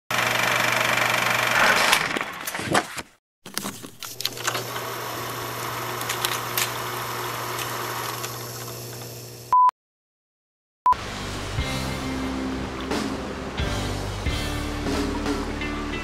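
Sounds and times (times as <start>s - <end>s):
old film hiss and hum: 11.0s - 15.5s.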